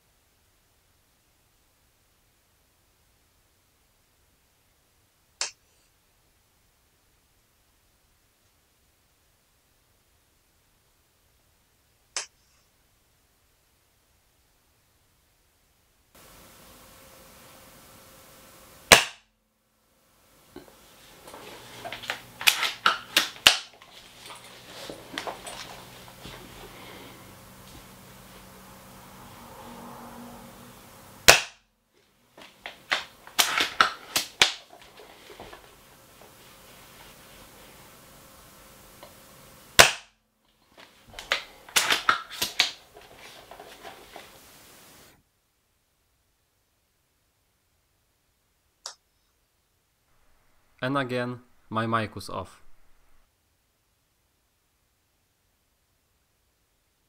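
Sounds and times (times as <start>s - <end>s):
airsoft rifle shot: 18.8s - 19.3s, 31.2s - 31.6s, 39.8s - 40.2s.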